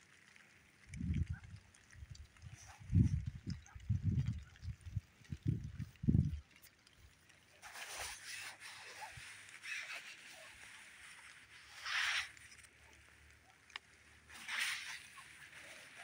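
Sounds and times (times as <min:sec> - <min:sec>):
soft rustling hiss: 0:05.2 - 0:16.0.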